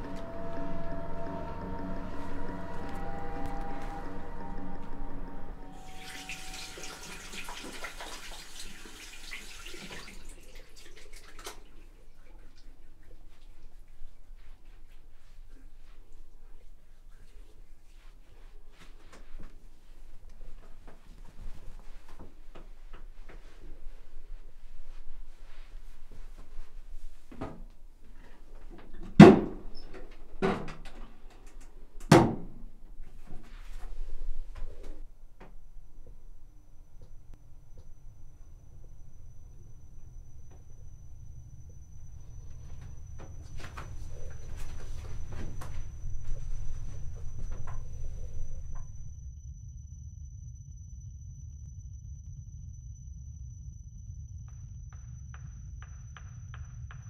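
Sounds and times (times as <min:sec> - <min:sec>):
tap water splashing into sink: 0:06.0 - 0:11.8.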